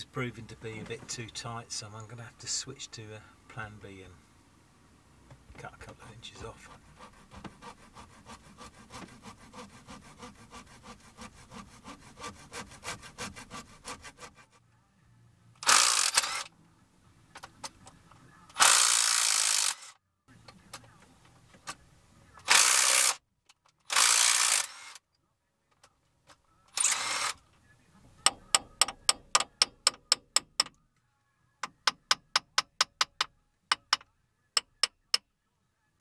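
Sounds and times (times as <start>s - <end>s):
saw cutting rubber hose: 6.4s - 14.6s, 22.5s - 23.2s, 23.9s - 25.0s, 26.8s - 27.4s.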